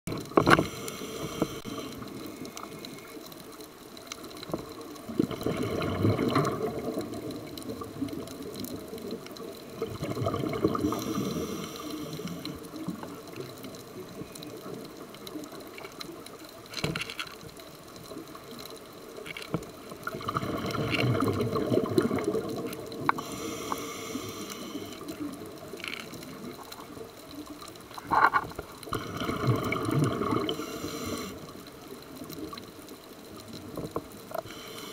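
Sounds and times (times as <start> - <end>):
exhaled bubbles rumbling underwater: 0.1 - 16.7, 17.4 - 34.6
steady underwater hiss: 0.1 - 34.9.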